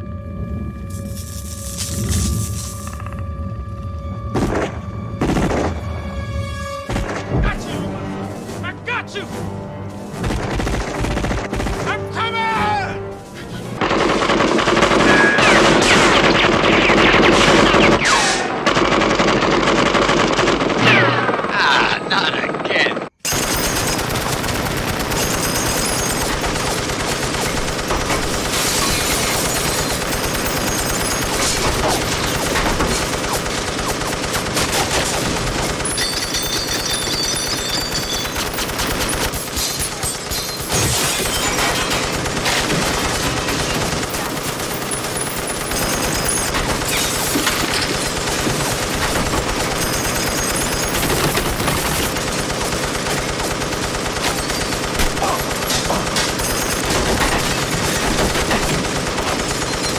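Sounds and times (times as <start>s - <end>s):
machine gun automatic bursts: 10.2s - 12.0s, 13.8s - 18.0s, 18.6s - 21.5s, 22.4s - 59.9s.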